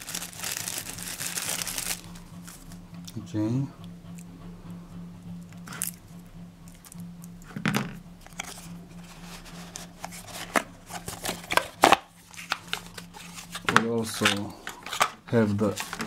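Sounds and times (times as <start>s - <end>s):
steady low hum: 0.0s - 16.0s
cardboard box rustling and scraping: 8.4s - 13.7s.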